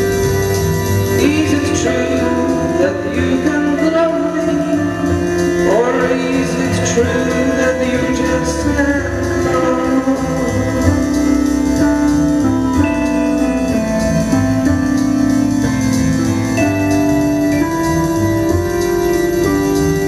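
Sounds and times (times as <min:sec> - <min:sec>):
person singing: 0:00.0 - 0:15.9
low bass line: 0:00.0 - 0:20.0
organ-like keyboard chords: 0:00.0 - 0:20.0.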